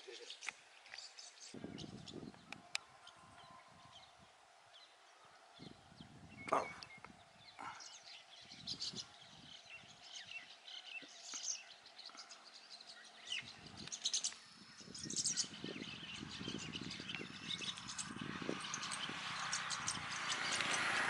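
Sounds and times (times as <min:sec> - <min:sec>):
starling chirping: 0:06.0 - 0:21.0.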